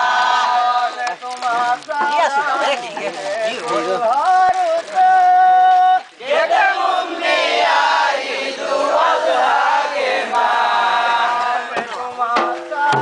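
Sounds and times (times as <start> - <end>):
men chanting together: 6.2 - 13.0
hand-drum strokes: 11.7 - 13.0.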